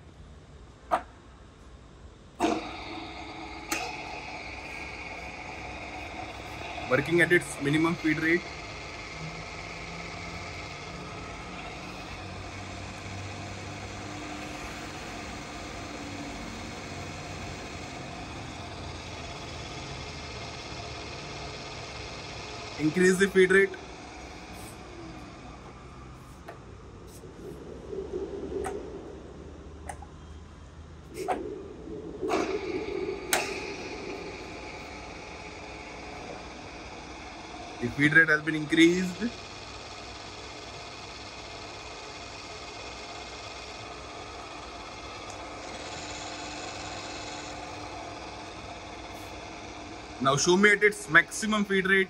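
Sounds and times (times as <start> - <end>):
feed control clicks: 2.4 - 10.9
drill machine humming: 2.4 - 27.2, 32.2 - 52.0.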